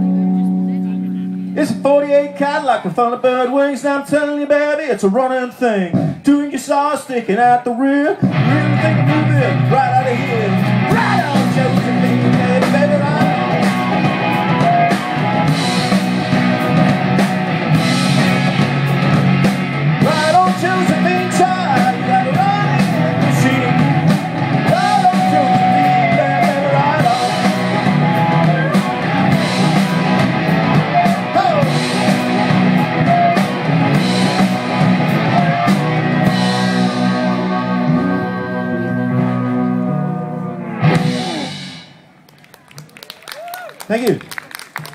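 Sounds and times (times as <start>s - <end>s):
electric guitars: 0.0s - 2.9s, 8.2s - 42.3s
drum kit: 5.9s - 6.3s, 8.2s - 38.4s, 40.8s - 42.0s.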